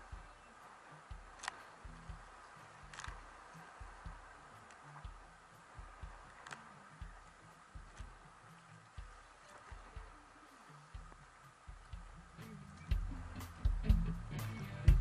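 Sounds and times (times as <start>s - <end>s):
faint hiss: 0.0s - 15.0s
muffled paddle thumps: 0.0s - 15.0s
sharp clicks: 0.6s - 8.2s.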